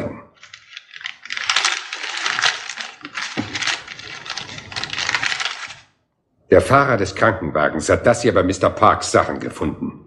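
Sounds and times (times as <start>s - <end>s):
paper rustling and crinkling: 0.4s - 5.9s.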